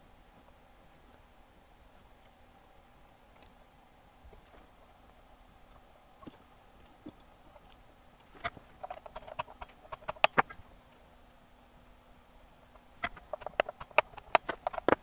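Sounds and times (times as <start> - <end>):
tools tapping circuit board: 13.0 - 15.0.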